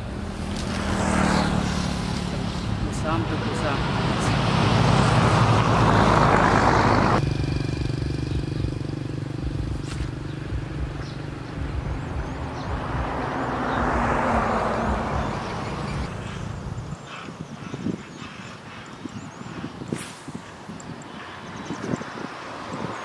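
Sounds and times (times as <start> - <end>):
loud rush of engine noise: 0.0 - 17.1.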